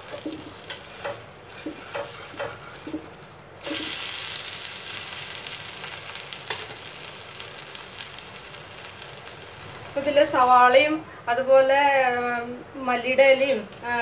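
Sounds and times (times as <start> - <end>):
steel spatula scraping griddle: 0.0 - 3.0
dosa sizzling on hot oil: 0.0 - 14.0.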